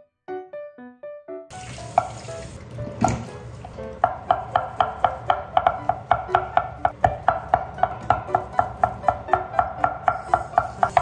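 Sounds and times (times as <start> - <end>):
knife chopping on wooden board: 4.0 - 11.0.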